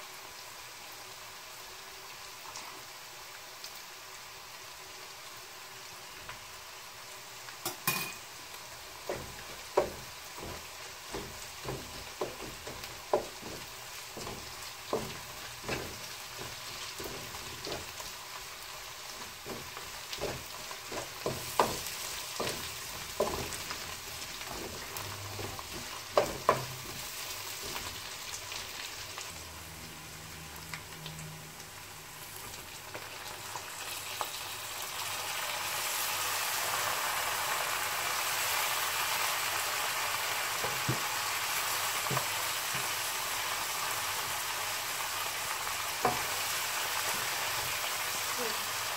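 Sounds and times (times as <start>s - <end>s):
food sizzling in oil: 0.0s - 48.9s
utensils knocking against pan: 7.6s - 8.2s, 9.1s - 18.0s, 19.4s - 28.0s
wooden spatula stirring: 8.9s - 28.6s.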